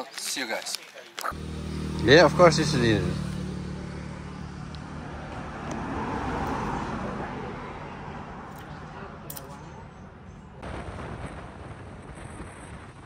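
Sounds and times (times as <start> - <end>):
vehicle passing: 1.3 - 10.6.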